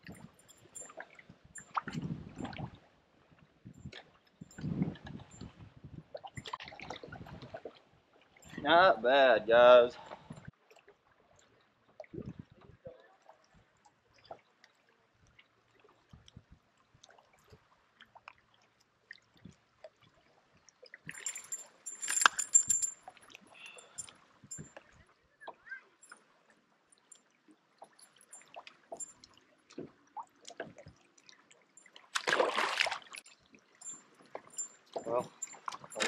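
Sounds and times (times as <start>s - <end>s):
fish splashing at water surface: 32.1s - 33.3s.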